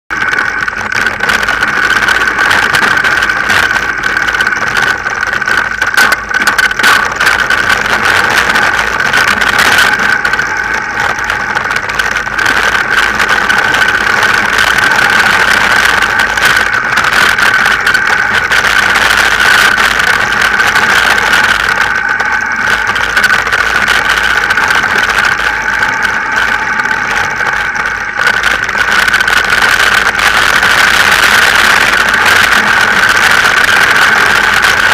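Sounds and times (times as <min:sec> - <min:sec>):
bike tyres rolling: 0:00.1 - 0:34.9
steady hum: 0:00.1 - 0:34.9
wind noise: 0:00.1 - 0:34.9.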